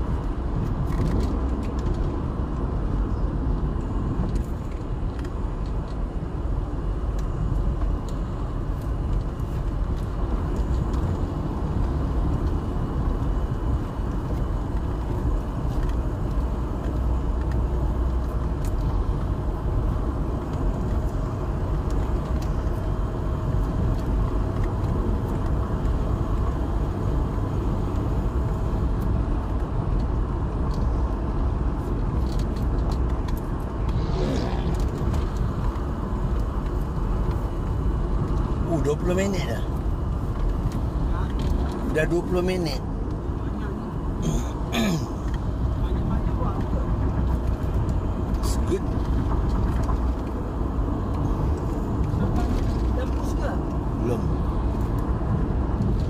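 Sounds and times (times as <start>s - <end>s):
car engine and tyre rumble: 0.0s - 56.0s.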